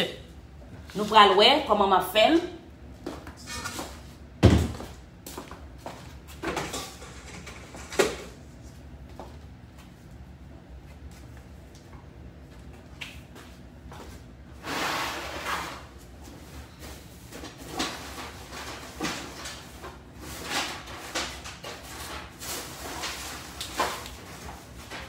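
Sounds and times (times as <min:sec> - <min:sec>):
kitchen knocks and clatters: 0:03.3 - 0:04.9, 0:06.3 - 0:08.4, 0:17.3 - 0:25.0.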